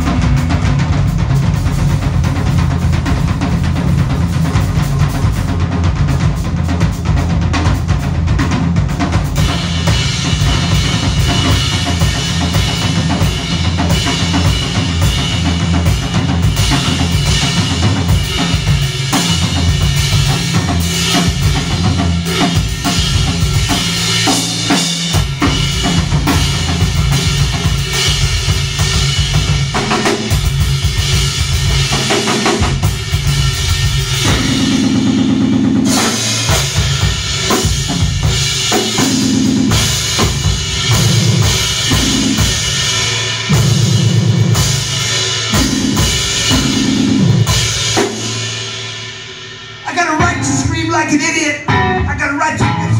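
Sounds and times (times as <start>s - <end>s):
electric bass: 0.0s - 48.9s
drum kit played hard: 0.0s - 52.9s
electric guitar: 51.6s - 52.9s.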